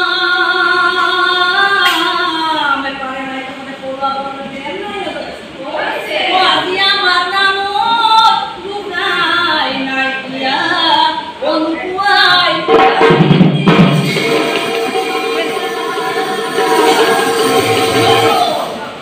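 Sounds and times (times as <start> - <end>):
group singing: 5.6 - 8.5, 14.0 - 19.0.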